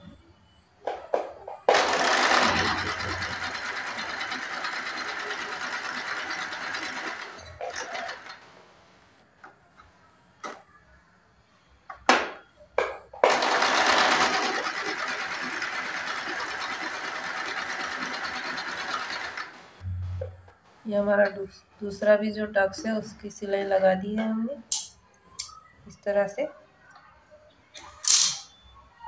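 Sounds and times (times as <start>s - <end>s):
sewing machine stitching: 1.7s - 8.4s, 13.3s - 19.8s.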